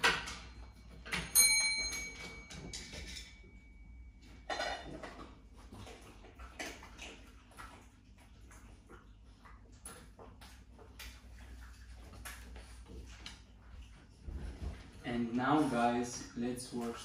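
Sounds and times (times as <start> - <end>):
bell ringing: 1.0 - 4.2.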